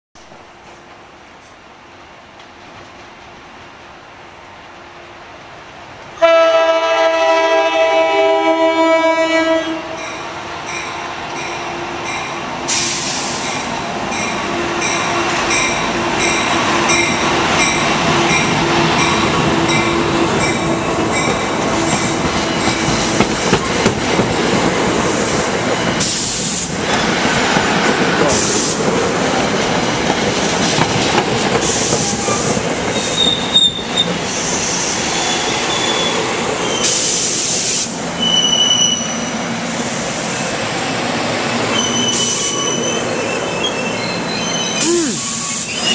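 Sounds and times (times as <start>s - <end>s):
locomotive horn: 6.2s - 10.0s
train bell ringing: 9.9s - 12.4s, 13.4s - 21.6s
air hissing bursts: 12.7s - 13.6s, 25.1s - 26.9s, 28.2s - 29.0s, 31.6s - 33.4s, 36.8s - 38.1s, 44.8s - 45.9s
train wheels clattering: 12.7s - 35.6s
brake squeals: 33.0s - 34.1s, 38.2s - 39.4s, 41.7s - 45.9s.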